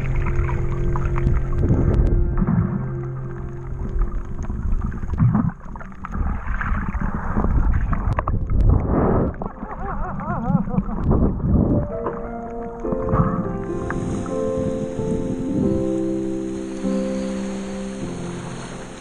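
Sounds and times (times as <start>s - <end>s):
background music with held notes: 0.0s - 6.1s, 11.6s - 19.0s
low rumble: 0.0s - 16.6s
water sloshing and gurgling: 0.0s - 19.0s.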